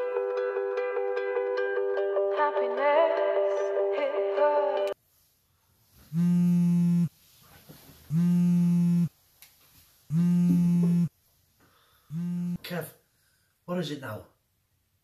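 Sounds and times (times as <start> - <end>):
plucked string music: 0.0 - 5.0
phone buzzing: 6.1 - 7.1, 8.1 - 9.1, 10.1 - 11.1, 12.1 - 12.6.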